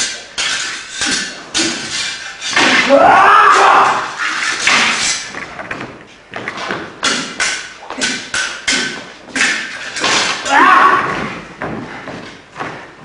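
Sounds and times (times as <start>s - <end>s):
steel swords clashing: 0.0s - 5.4s, 7.0s - 11.1s.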